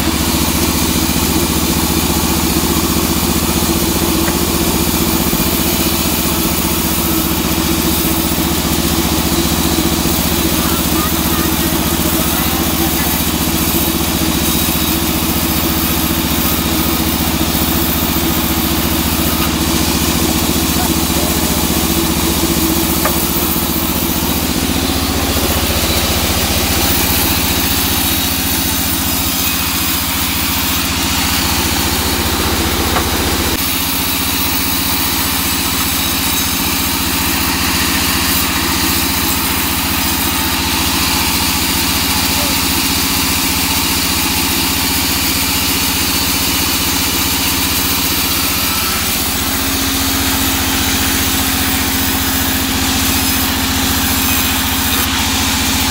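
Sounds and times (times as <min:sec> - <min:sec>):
band saw humming: 0:00.0 - 0:55.9
saw blade hissing through log: 0:00.0 - 0:55.9.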